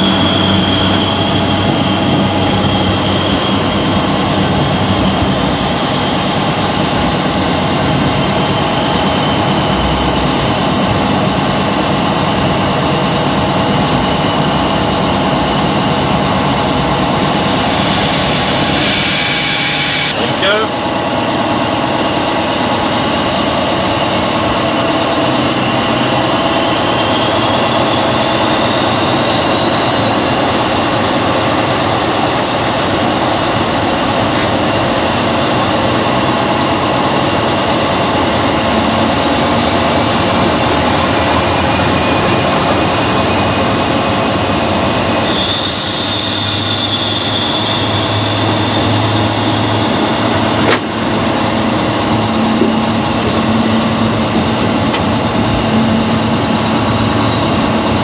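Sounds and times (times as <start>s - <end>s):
turbocharger whistle rising: 0.0s - 7.3s, 16.7s - 20.6s, 45.2s - 52.9s
locomotive diesel engine running: 0.0s - 58.0s
high ringing tone: 29.8s - 38.9s, 45.2s - 56.4s.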